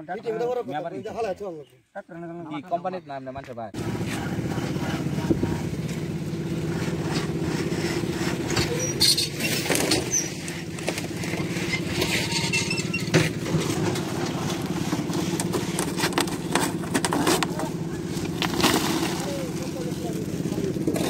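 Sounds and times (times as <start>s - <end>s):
concrete mixer engine running: 3.8s - 21.0s
wheelbarrow on wet concrete: 3.8s - 21.0s
tools scraping and knocking: 6.8s - 18.4s.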